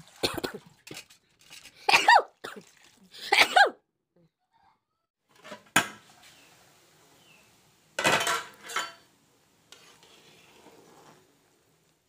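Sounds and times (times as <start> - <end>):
person sneezing: 1.9 - 3.8.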